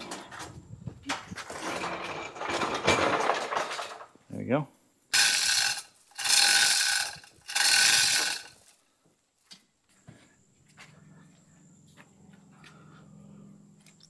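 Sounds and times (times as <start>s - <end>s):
chain rattling through hoist: 5.1s - 8.8s.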